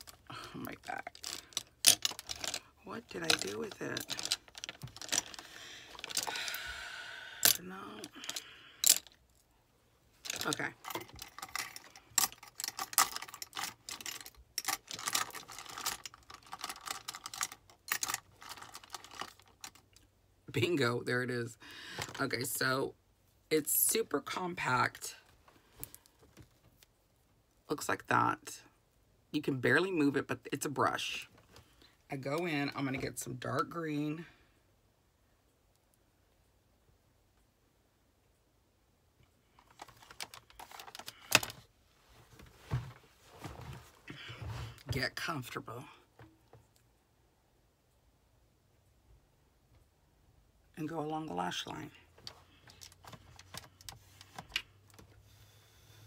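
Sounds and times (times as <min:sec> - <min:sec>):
plastic pieces clicking and clattering: 0:01.0 - 0:06.4, 0:10.2 - 0:20.0, 0:39.6 - 0:41.6.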